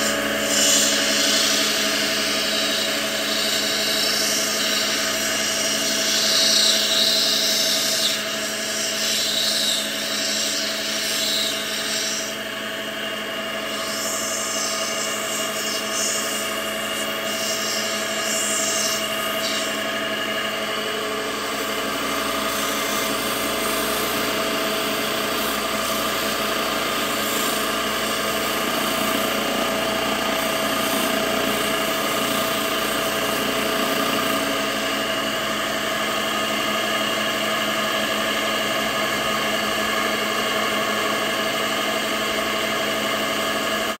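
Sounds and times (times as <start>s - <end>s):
stone grinding on wheel: 0.0s - 5.1s
grinding machine motor whine: 0.0s - 44.0s.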